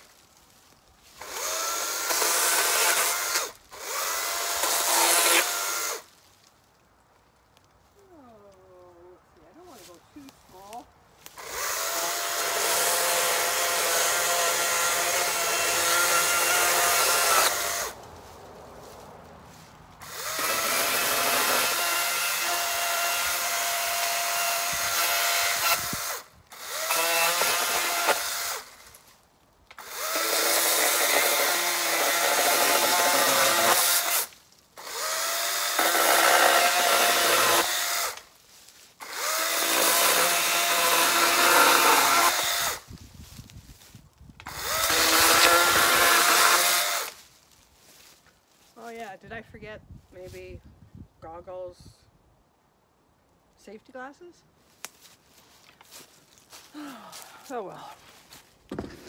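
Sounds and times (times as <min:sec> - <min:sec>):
electric chainsaw cutting wood: 0:01.2 - 0:06.1, 0:11.3 - 0:18.0, 0:20.0 - 0:29.0, 0:29.7 - 0:38.3, 0:39.0 - 0:42.9, 0:44.4 - 0:47.2.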